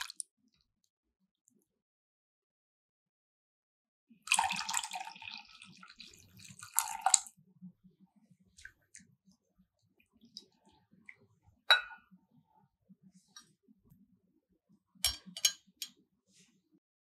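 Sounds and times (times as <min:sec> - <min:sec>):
liquid pouring and splashing into bowl: 0:00.0 - 0:00.2, 0:04.3 - 0:07.4, 0:08.5 - 0:09.2.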